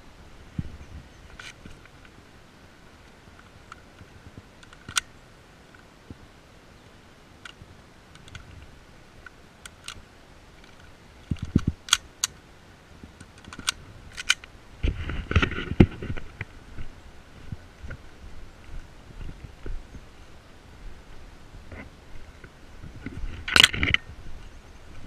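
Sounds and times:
metallic pistol clicks: 11.4s - 12.4s, 13.4s - 14.5s.

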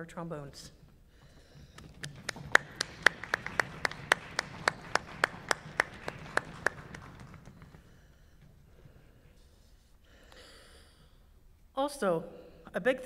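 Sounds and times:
close loud hand clapping: 1.7s - 8.0s
people applauding: 1.8s - 8.2s.

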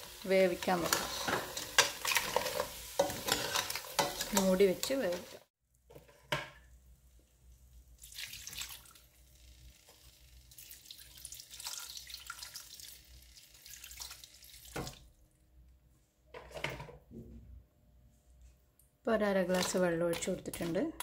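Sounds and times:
water pouring and splashing: 8.0s - 9.1s, 10.6s - 15.1s.

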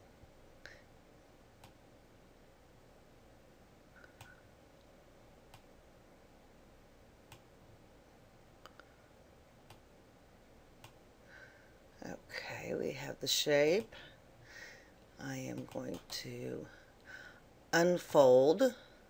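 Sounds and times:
computer mouse clicking: 7.3s - 7.5s, 10.8s - 11.0s, 15.5s - 16.1s.

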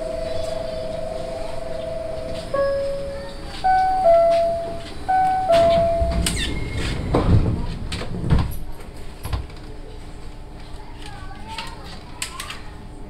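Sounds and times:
low steady hum: 0.0s - 6.8s
two-note door chime: 0.0s - 6.8s
train doors sliding shut: 2.4s - 8.7s.

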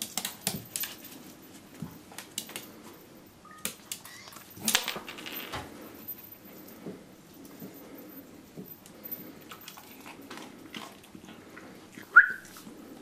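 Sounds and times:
dog claws clicking on tile: 0.0s - 2.8s.

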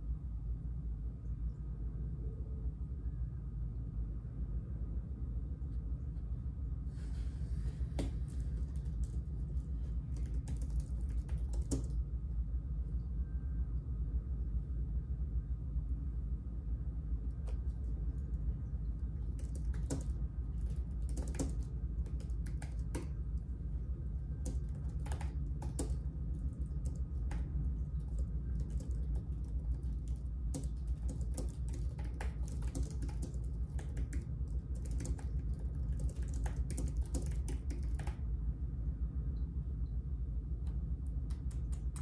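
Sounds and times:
steady low hum: 0.0s - 42.0s
computer keyboard typing: 8.0s - 12.0s, 19.2s - 38.2s, 41.2s - 42.0s.

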